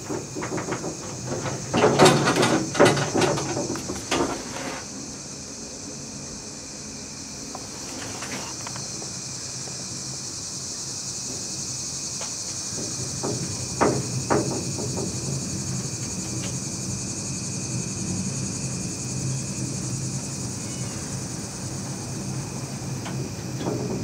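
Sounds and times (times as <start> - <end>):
sharp clunks: 0.0 - 4.8
cable car hum: 0.0 - 24.0
insect chorus: 0.0 - 24.0.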